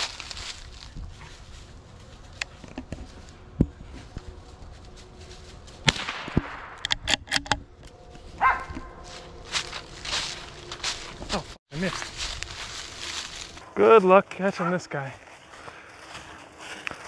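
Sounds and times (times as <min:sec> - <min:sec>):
rifle shot with echo: 0:05.9 - 0:06.8
sharp clicks and knocks: 0:06.2 - 0:08.9.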